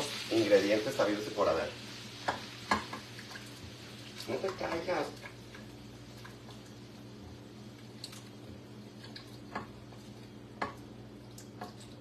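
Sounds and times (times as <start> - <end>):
spoon stirring wet mixture: 7.9 - 12.0.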